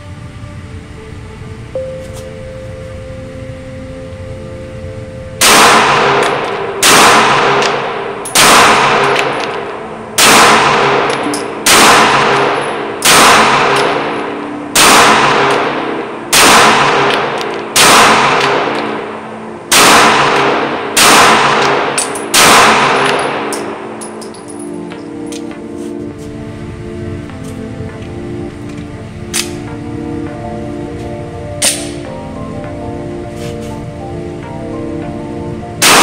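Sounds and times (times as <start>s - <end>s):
pistol shots echoing indoors: 5.4s - 25.5s, 31.6s - 32.1s, 35.8s - 36.0s.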